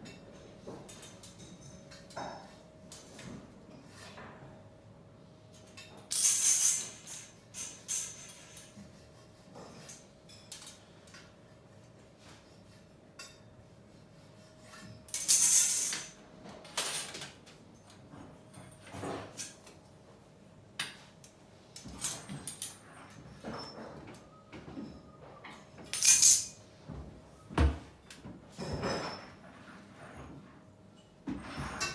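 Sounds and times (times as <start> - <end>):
metal pipe clanking and scraping: 22.0 - 26.5, 28.5 - 30.5.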